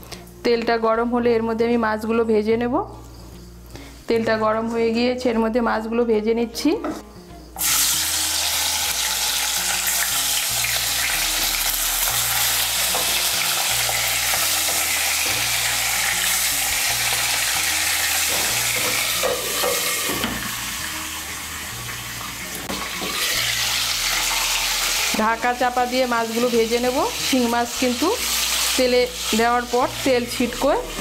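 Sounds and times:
fish frying in oil: 0:07.6 - 0:18.4.

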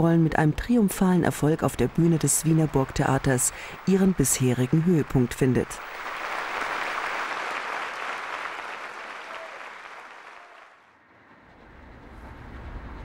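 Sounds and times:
audience applauding: 0:01.5 - 0:11.0.

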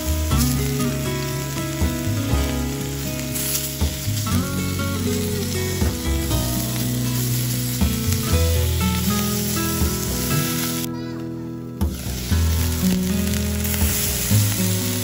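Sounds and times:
meat sizzling in a skillet: 0:00.0 - 0:11.0, 0:11.8 - 0:15.0
background music: 0:00.0 - 0:15.0.

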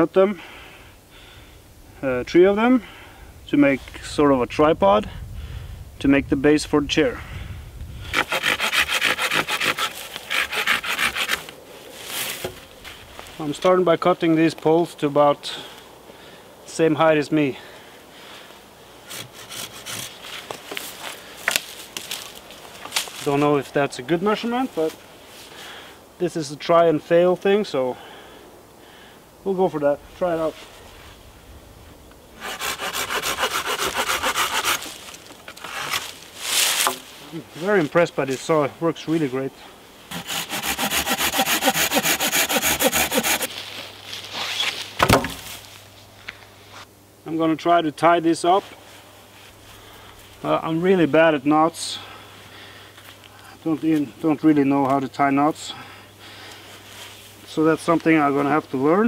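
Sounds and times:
hand saw cutting wood: 0:08.1 - 0:11.5, 0:19.1 - 0:20.8, 0:32.4 - 0:37.1, 0:40.1 - 0:43.5.

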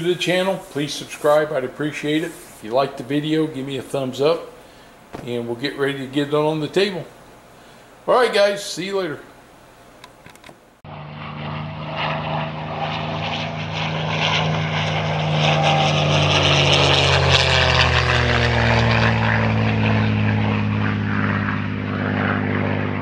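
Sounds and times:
engine drone: 0:10.8 - 0:23.0.

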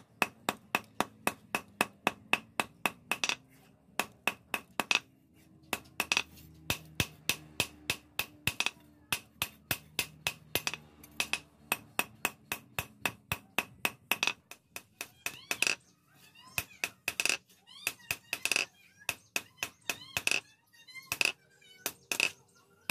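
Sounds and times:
hammer striking hot steel on anvil: 0:05.7 - 0:14.6.

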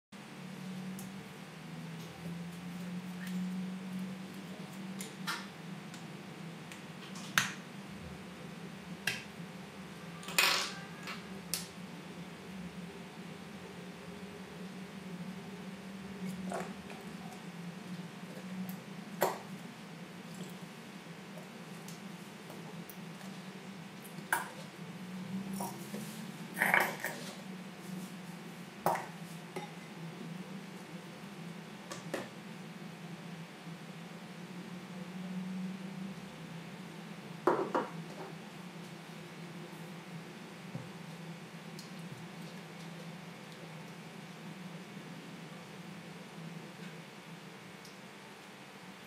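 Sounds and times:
low steady hum: 0:00.2 - 0:49.0.

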